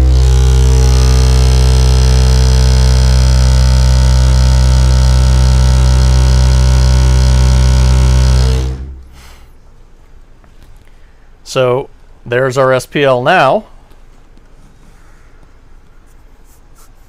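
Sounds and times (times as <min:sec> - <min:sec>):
harsh buzz: 0:00.0 - 0:09.5
subwoofer low test tone: 0:00.0 - 0:09.6.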